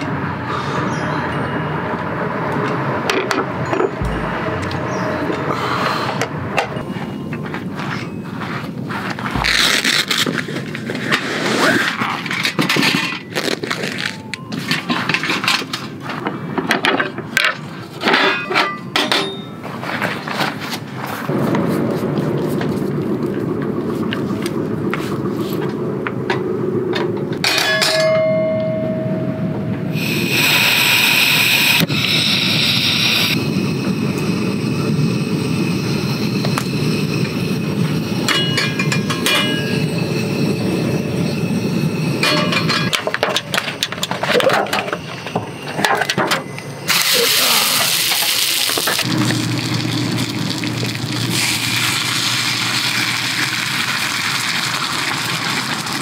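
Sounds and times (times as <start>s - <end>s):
metal utensils clinking on pan: 18.0s - 19.6s, 27.4s - 28.3s, 38.3s - 39.7s, 42.2s - 45.2s
oil sizzling and hissing: 29.9s - 40.6s, 46.9s - 56.0s
gas burner running: 29.9s - 56.0s.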